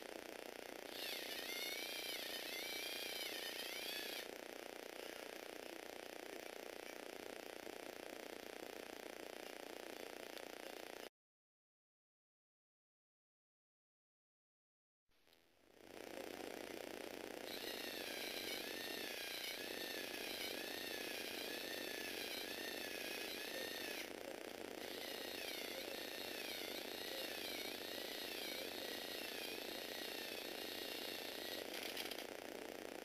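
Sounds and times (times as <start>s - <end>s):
electric motor and plastic gears whining: 0.0s - 11.1s, 15.7s - 33.0s.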